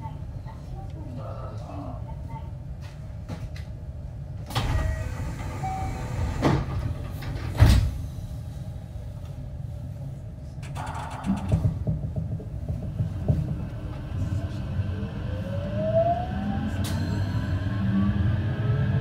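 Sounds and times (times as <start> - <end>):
stationary train rumble: 0.0 - 19.0
train sliding doors shutting: 4.4 - 8.4, 16.7 - 17.6
low knocks: 11.2 - 13.7.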